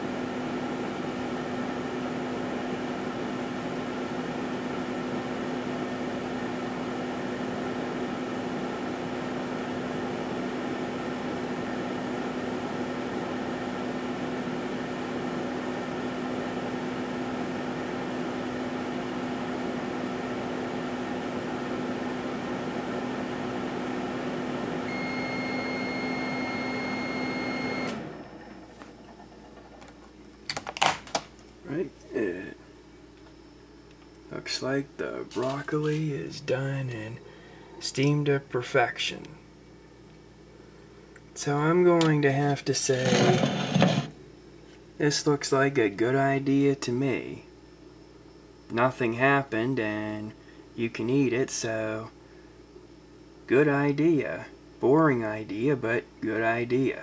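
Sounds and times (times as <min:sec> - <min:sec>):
microwave oven humming: 0:00.0 - 0:57.0
high steady beep: 0:24.9 - 0:27.9.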